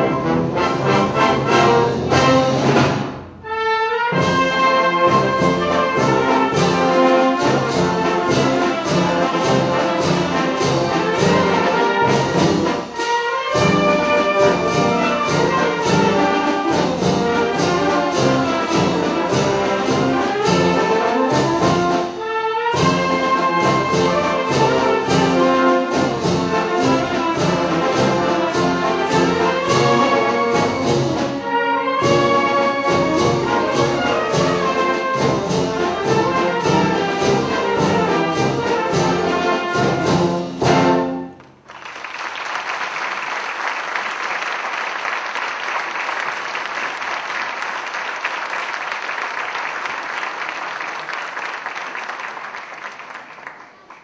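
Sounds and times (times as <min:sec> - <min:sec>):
wind band playing: 0:00.0 - 0:41.5
audience applause: 0:41.5 - 0:54.0.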